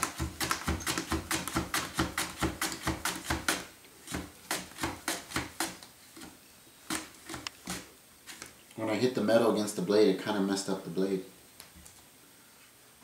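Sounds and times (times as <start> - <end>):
potato slicing on a mandoline: 0.0 - 8.5.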